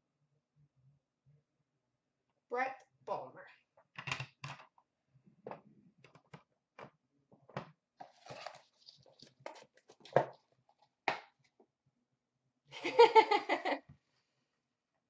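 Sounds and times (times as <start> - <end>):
packaging rustling: 8.0 - 10.1.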